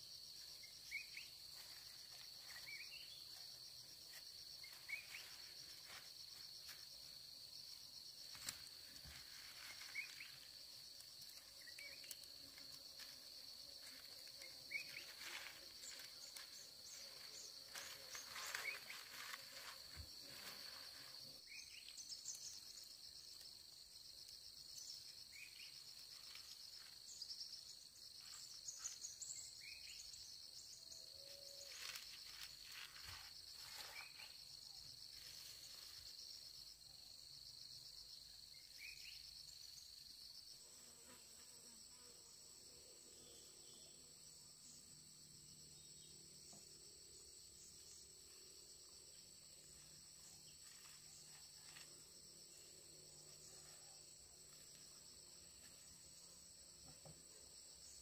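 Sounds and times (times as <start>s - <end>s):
insects chirring: 0.0s - 58.0s.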